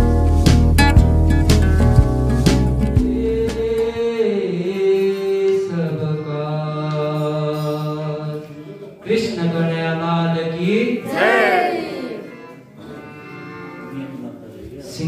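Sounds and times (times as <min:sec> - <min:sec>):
music with plucked notes and bass: 0:00.0 - 0:03.7.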